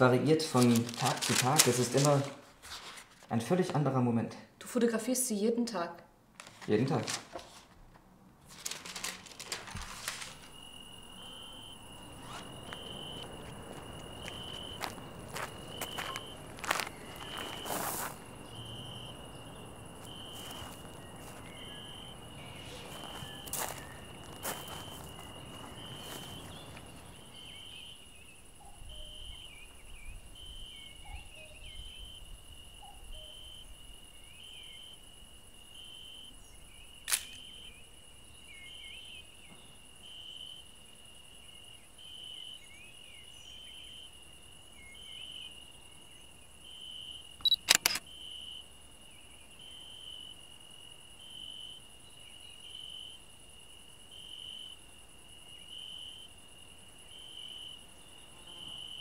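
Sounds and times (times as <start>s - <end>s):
crickets chirping: 0.0s - 5.4s, 8.3s - 59.0s
thin insect hiss: 8.5s - 59.0s
camera shutter clicks: 37.1s - 37.4s, 47.4s - 48.0s.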